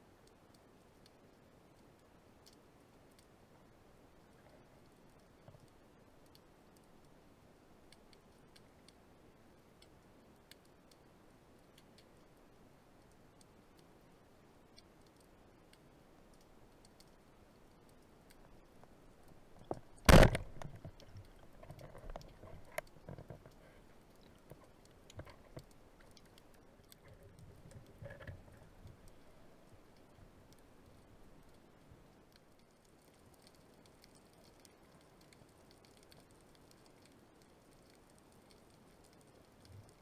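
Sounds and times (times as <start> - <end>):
faint underwater clicking: 0.2 - 3.4, 9.7 - 13.9, 14.7 - 40.0
faint knocks and rustles: 18.3 - 30.3.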